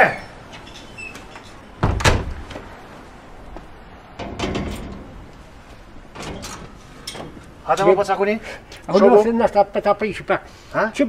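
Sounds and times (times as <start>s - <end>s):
iron gate banging shut: 0.0s - 2.7s, 4.1s - 7.8s
gate knocking and rattling: 0.6s - 2.8s, 4.1s - 7.8s.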